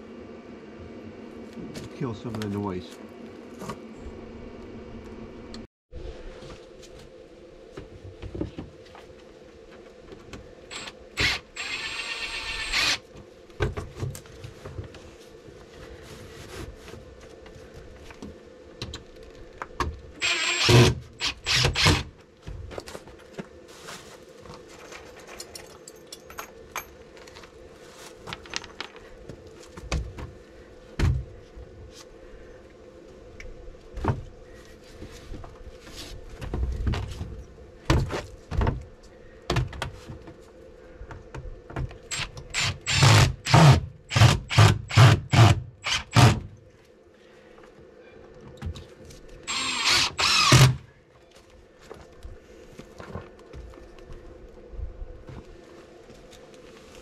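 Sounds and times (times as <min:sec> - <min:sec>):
faint steady hum: 0:00.0 - 0:57.0
cordless drill driving screw: 0:10.7 - 0:13.0, 0:20.2 - 0:22.1, 0:42.1 - 0:46.4, 0:49.5 - 0:50.8.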